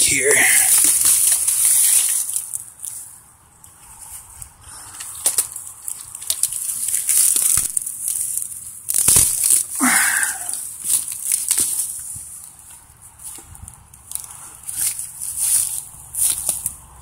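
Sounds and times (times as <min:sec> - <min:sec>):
dry grass rustling underfoot: 0:00.0 - 0:17.0
twigs snapping: 0:00.5 - 0:03.8, 0:04.4 - 0:16.9.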